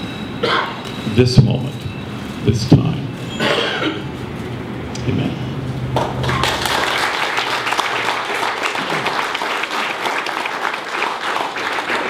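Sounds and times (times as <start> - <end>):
crowd applauding: 5.9 - 12.0.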